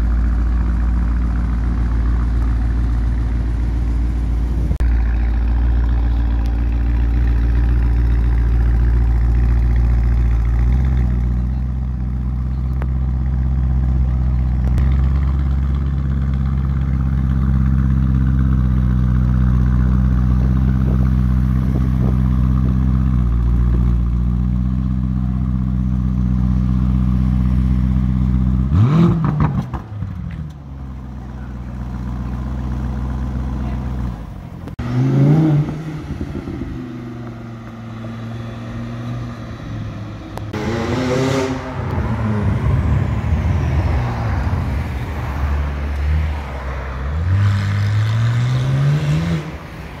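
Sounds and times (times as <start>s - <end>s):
car engine idling: 0.0s - 34.9s, 35.8s - 40.6s.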